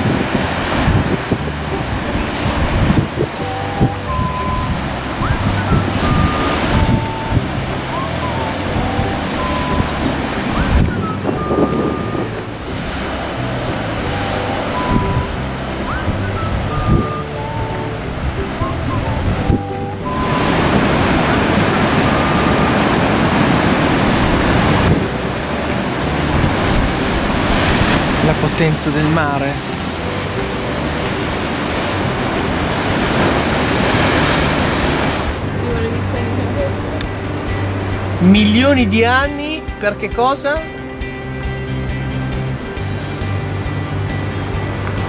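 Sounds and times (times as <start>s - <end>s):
wind buffeting microphone: 0.0s - 39.8s
ocean surf breaking: 0.0s - 45.0s
thin whistle of held notes: 3.4s - 12.7s, 14.0s - 24.2s.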